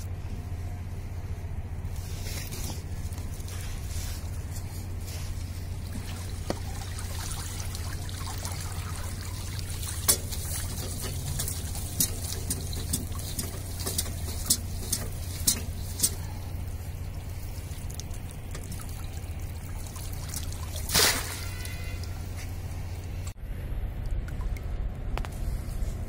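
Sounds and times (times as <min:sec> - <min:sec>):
low steady hum: 0:00.0 - 0:26.0
water splashes: 0:03.3 - 0:23.4
water pouring and dripping: 0:05.1 - 0:22.5.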